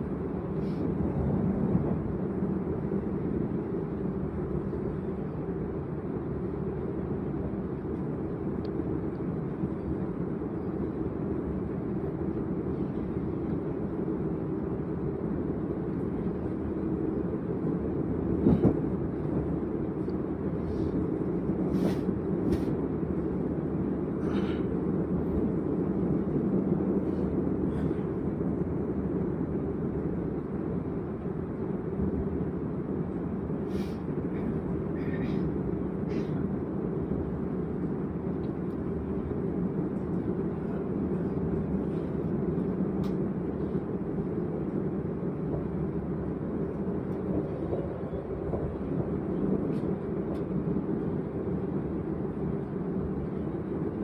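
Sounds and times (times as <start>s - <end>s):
train rumbling: 0.0s - 54.0s.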